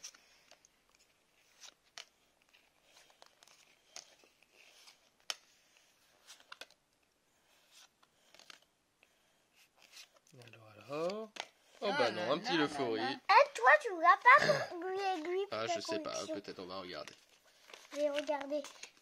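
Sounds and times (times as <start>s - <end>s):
cards clicking and rustling: 6.2s - 6.8s, 7.5s - 8.7s, 16.9s - 19.0s.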